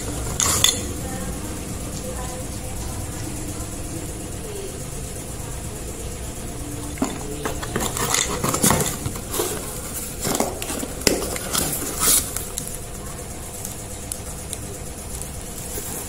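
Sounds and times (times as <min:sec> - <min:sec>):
grinding discs clicking and knocking: 0:06.8 - 0:12.9
cardboard rustling: 0:07.0 - 0:12.8.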